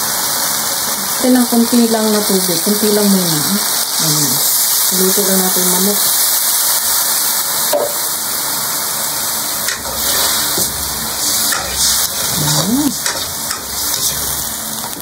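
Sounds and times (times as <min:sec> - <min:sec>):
chicken sizzling in a wok: 0:00.0 - 0:15.0
metal ladle scraping wok: 0:09.7 - 0:14.4.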